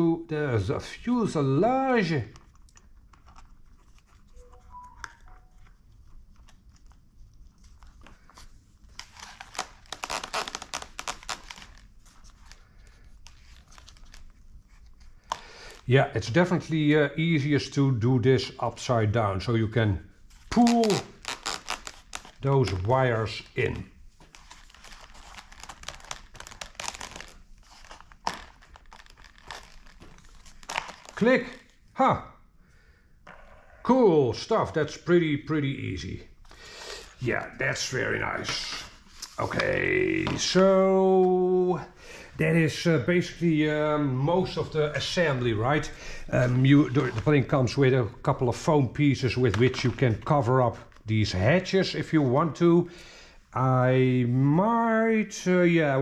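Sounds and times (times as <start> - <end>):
wires and foam rustling: 0.6 - 16.7, 20.2 - 31.8, 42.4 - 52.7.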